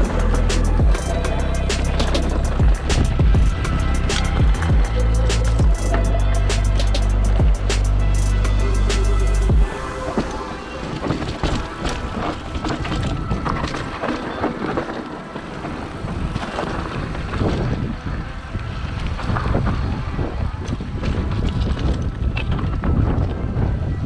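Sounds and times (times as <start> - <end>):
wind buffeting microphone: 0.0 - 24.0
bike clattering over stones: 10.9 - 17.8.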